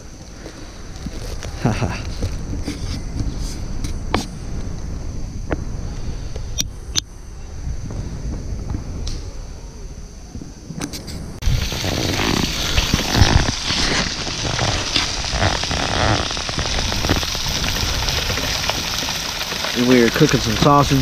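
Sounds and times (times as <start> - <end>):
wind rumble on microphone: 0.0 - 21.0
food sizzling over campfire: 11.4 - 21.0.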